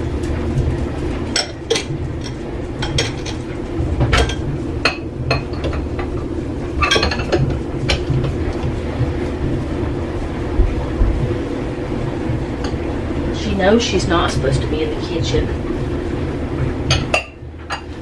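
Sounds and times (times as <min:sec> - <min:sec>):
steady low hum: 0:00.0 - 0:18.0
glass dishes clinking: 0:06.8 - 0:07.4.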